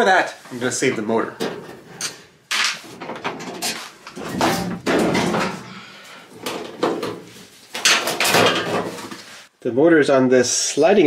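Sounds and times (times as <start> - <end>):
sheet metal panel knocks and scrapes: 1.4 - 5.7, 6.4 - 9.2.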